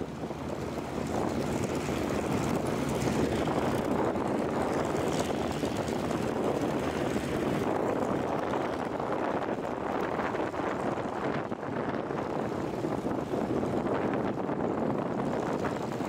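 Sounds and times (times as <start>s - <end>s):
propeller aircraft engines droning: 0.0s - 16.0s.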